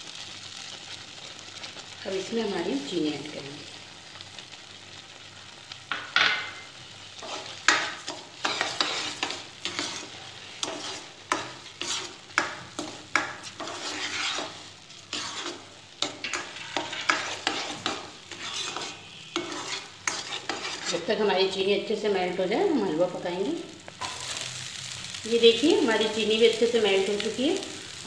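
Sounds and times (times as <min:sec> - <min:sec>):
spatula scraping wok: 0:05.9 - 0:22.8.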